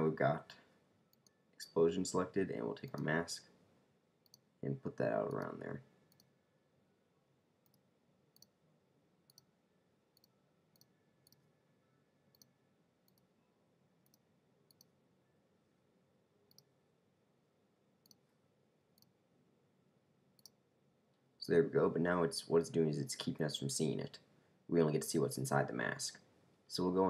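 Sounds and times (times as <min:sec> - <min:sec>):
computer mouse clicks: 0:08.4 - 0:08.6, 0:14.0 - 0:14.9, 0:16.5 - 0:16.7, 0:20.4 - 0:20.6.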